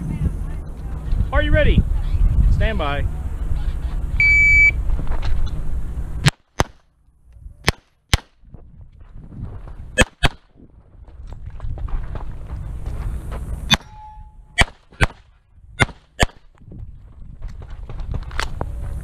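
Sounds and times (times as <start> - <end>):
timer start beep: 4.2 - 4.8
pistol shots: 6.2 - 6.8, 10.0 - 10.5, 14.6 - 15.2.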